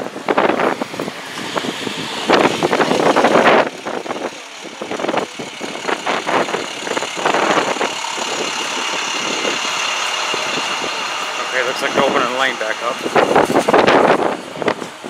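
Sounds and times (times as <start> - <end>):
bus engine driving past: 0.0 - 15.0.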